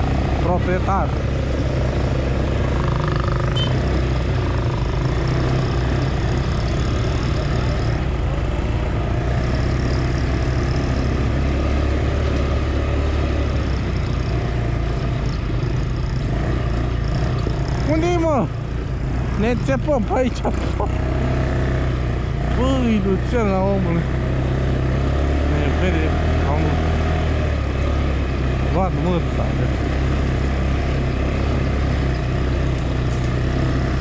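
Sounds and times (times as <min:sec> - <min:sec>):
quad bike engine droning: 0:00.0 - 0:34.0.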